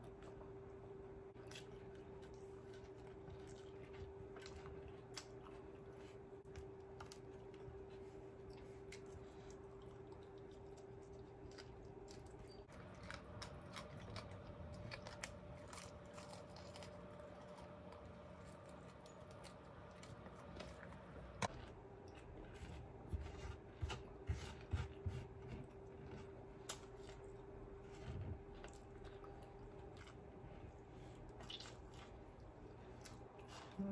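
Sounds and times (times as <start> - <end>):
faint steady hum: 0.0 - 33.9
chewing mouth clicks and smacks: 31.4 - 32.1.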